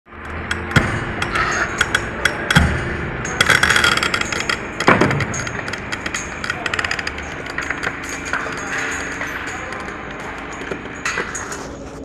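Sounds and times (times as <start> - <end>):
steady low hum: 0.1 - 12.0.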